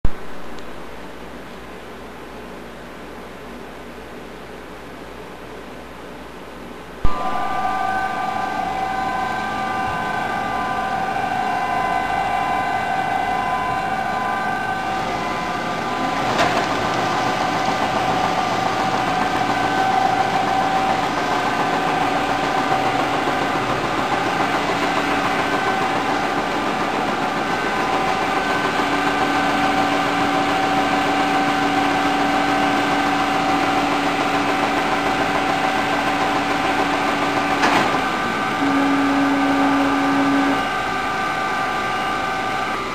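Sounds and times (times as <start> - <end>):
low hum: 4.7 - 33.6
printer whirring: 7.0 - 42.9.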